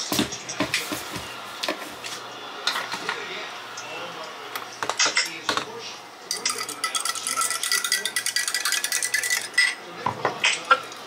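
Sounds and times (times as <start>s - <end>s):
metal stirrer clinking in glass: 6.3s - 9.8s.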